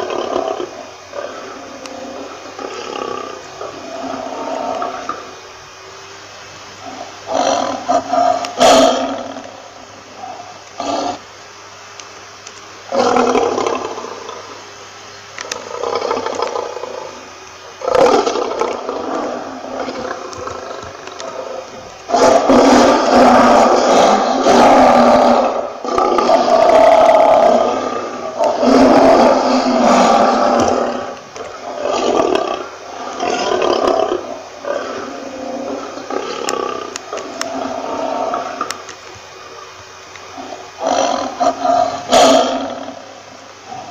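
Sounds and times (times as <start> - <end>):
lion roaring: 0.0 - 5.4, 6.8 - 11.2, 12.9 - 14.6, 15.4 - 38.9, 40.3 - 43.9.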